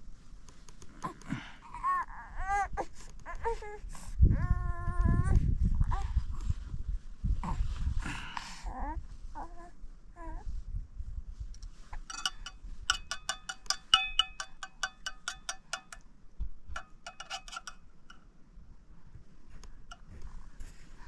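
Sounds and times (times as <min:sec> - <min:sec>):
metal spoon clinking on plate: 0:12.0 - 0:16.0, 0:16.7 - 0:18.2.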